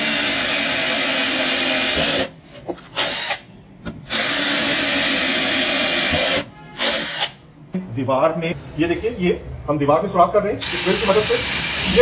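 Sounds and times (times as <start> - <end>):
cordless drill boring into wood: 4.1 - 7.3, 10.6 - 12.0.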